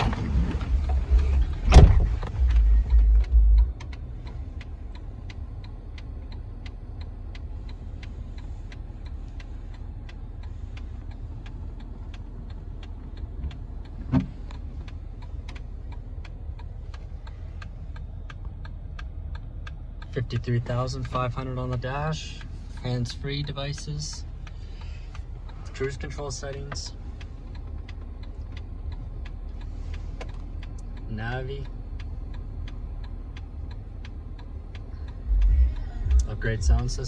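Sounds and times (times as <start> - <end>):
car engine idling: 0.0 - 37.0
indicator flasher ticking: 0.7 - 37.0
thump: 1.7 - 2.1
loud low rumbling: 35.2 - 37.0.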